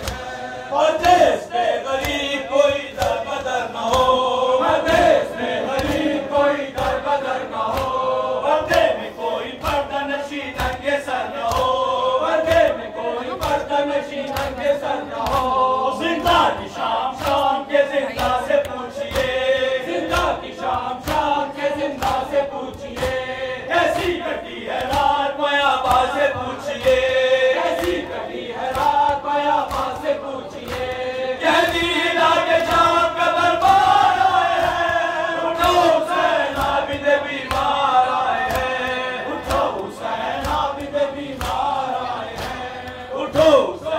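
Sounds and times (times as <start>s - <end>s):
men chanting in unison: 0.0s - 43.9s
chest beating slaps: 1.9s - 9.0s, 23.9s - 33.0s, 33.6s - 43.6s.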